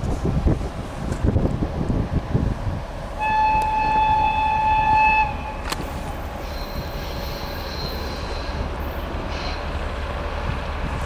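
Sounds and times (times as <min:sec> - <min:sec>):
high-pitched locomotive whistle: 0:03.2 - 0:05.8, 0:06.4 - 0:08.6.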